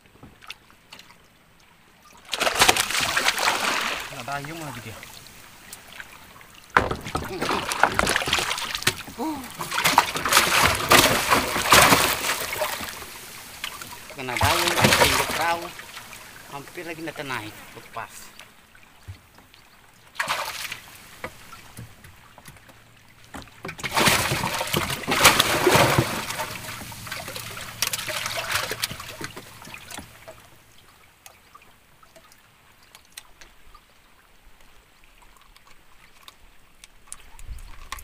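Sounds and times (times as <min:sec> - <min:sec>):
fish splashing and thrashing: 0:02.0 - 0:18.1, 0:20.1 - 0:31.5.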